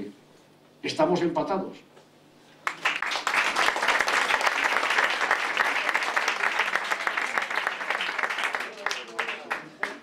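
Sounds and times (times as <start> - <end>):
audience applauding: 2.6 - 10.0.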